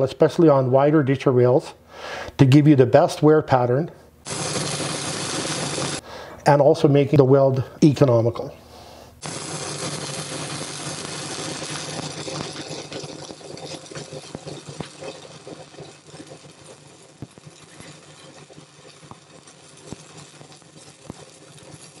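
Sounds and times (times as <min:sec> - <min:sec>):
spatter popping: 0:04.2 - 0:06.0, 0:09.2 - 0:22.0
welding arc crackling: 0:04.2 - 0:06.0, 0:09.2 - 0:22.0.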